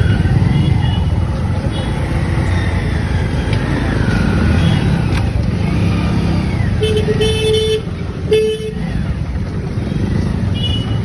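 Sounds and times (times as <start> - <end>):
motor scooter rumbling: 0.0 - 11.0
street traffic: 0.0 - 11.0
vehicle horn honking: 6.8 - 8.8.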